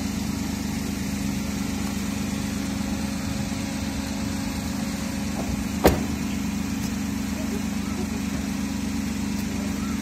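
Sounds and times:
car engine idling: 0.0s - 10.0s
car door slamming: 5.3s - 6.4s.

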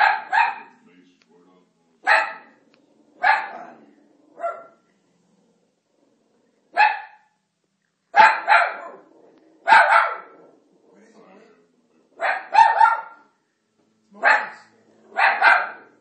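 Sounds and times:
dog barking: 0.0s - 0.7s, 2.0s - 2.6s, 3.2s - 3.8s, 4.4s - 4.8s, 6.7s - 7.4s, 8.2s - 10.5s, 12.2s - 13.3s, 14.2s - 16.0s.

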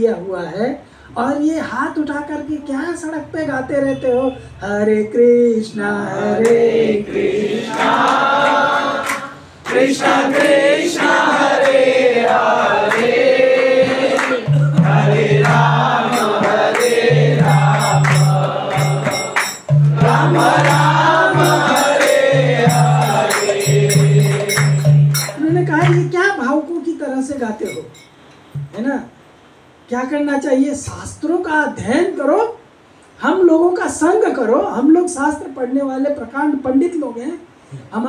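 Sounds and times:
voices joining in singing: 6.0s - 25.4s
man singing a chant: 13.5s - 19.4s, 20.0s - 25.2s
percussion with jingling cymbals: 13.5s - 26.3s, 27.5s - 28.8s
low pulsing beat: 14.5s - 26.1s.

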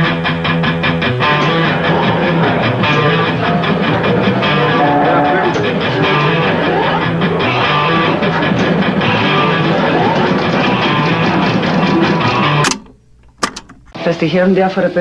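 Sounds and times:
garage rock music: 0.0s - 14.1s.

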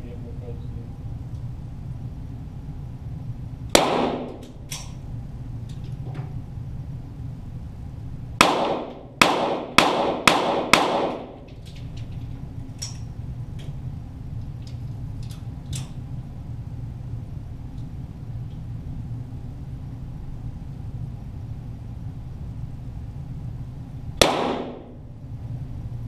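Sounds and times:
steady low hum: 0.0s - 26.0s
pistol shots echoing: 3.8s - 4.4s, 8.4s - 11.5s, 24.2s - 25.0s.

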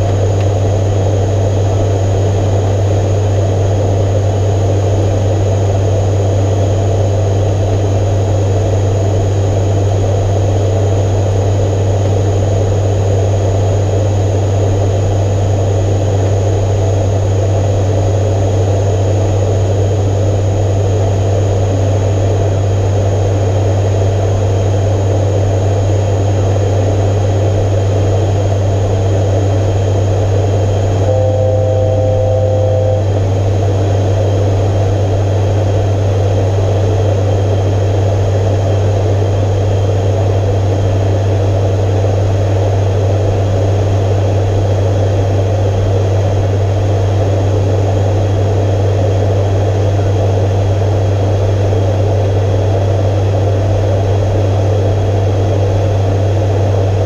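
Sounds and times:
deep propeller hum: 0.0s - 57.0s
electronic tone: 31.0s - 33.4s.

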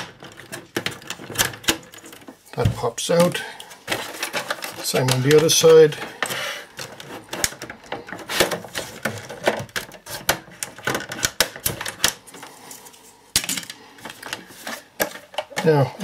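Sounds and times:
plastic casing clicking and creaking: 0.0s - 12.5s, 15.0s - 15.9s.

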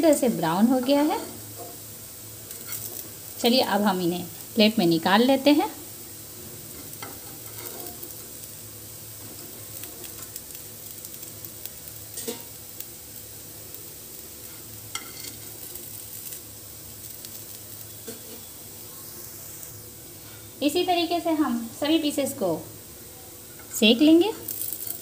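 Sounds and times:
oil sizzling in frying pan: 0.0s - 25.0s
metal utensil clicking and scraping pan: 6.8s - 8.2s, 12.1s - 12.5s, 14.9s - 15.6s.

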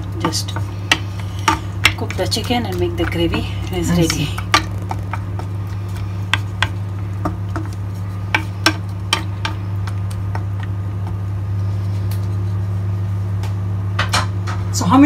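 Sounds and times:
wooden spoon tapping pan: 0.0s - 11.3s.

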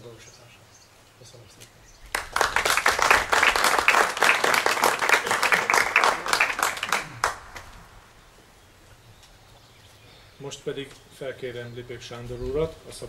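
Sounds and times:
audience applauding: 2.1s - 8.0s
single lone clap: 2.2s - 7.8s.

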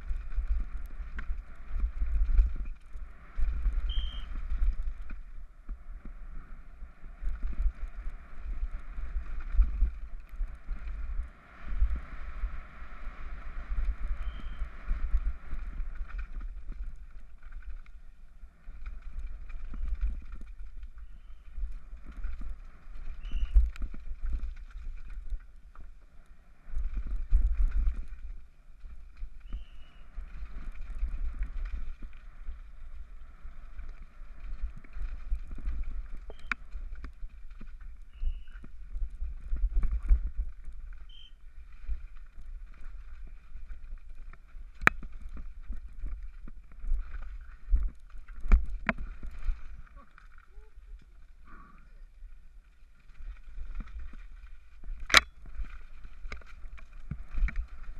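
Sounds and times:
mountain bike rattling on rocks: 0.0s - 6.1s, 7.1s - 11.3s, 13.3s - 50.6s, 52.8s - 57.9s
wind buffeting microphone: 0.0s - 25.6s.

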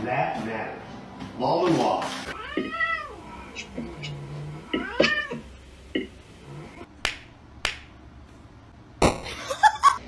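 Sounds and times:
cat yowling: 2.4s - 3.6s, 4.6s - 5.5s.

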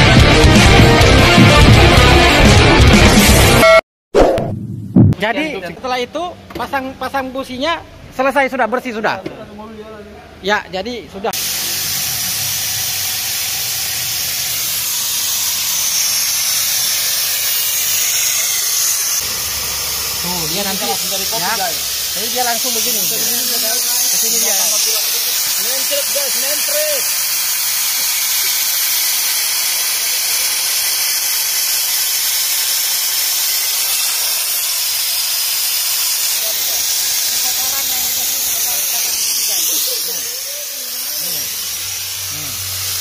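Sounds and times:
air-powered vacuum machine hissing: 11.4s - 43.0s.

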